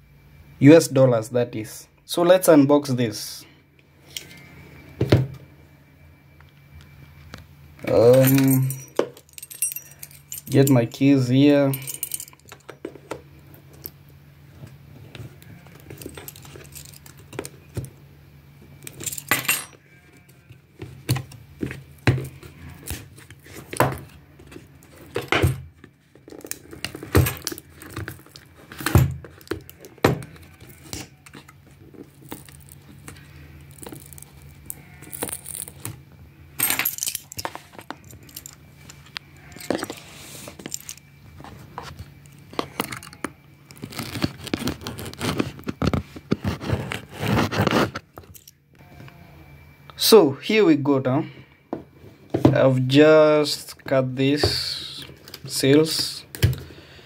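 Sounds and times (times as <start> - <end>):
key scraping cardboard box: 39.4 - 48.5.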